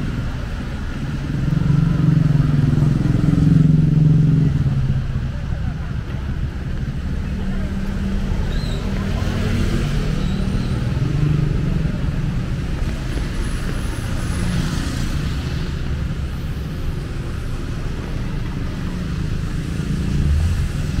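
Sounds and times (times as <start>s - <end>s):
traffic engine rumble: 0.0s - 21.0s.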